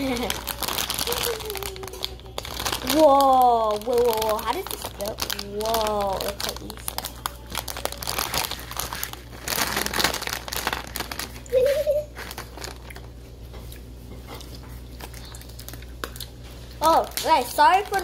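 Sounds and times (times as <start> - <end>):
child humming: 0.0 - 3.7, 11.5 - 12.2
plastic bag crinkling: 0.0 - 13.2, 15.0 - 18.0.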